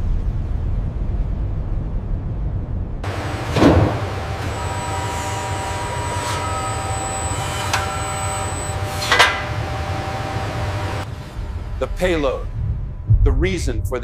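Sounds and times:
machinery low hum: 0.0 - 14.0
thin steady whines: 3.0 - 13.2
metallic clanks: 3.3 - 9.9.

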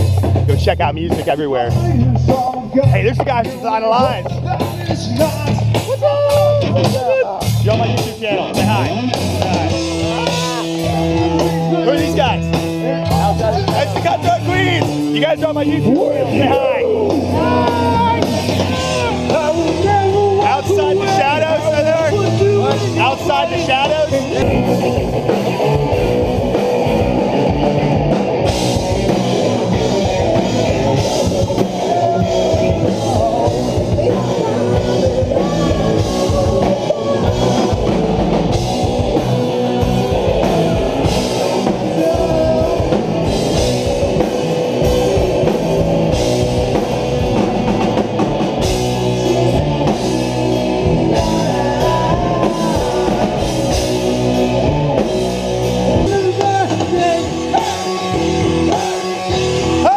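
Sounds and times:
drum kit: 0.0 - 59.9
electric guitars: 0.0 - 59.9
person singing: 29.4 - 48.0, 48.7 - 55.1, 55.7 - 59.9.

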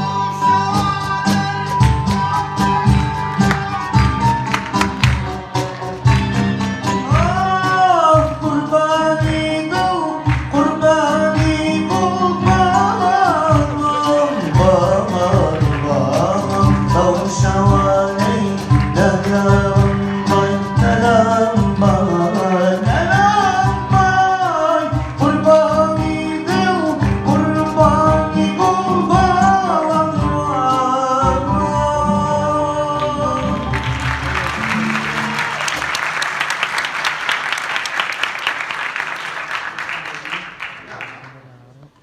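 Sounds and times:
man singing: 0.0 - 4.8, 6.8 - 35.0
acoustic ensemble with strings: 0.0 - 42.0
audience applauding: 1.6 - 8.4, 10.1 - 17.8, 33.2 - 42.0.

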